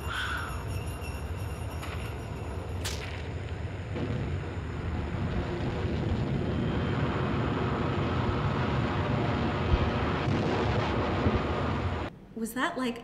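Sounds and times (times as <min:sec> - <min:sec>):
low rumbling roar: 0:03.7 - 0:12.1.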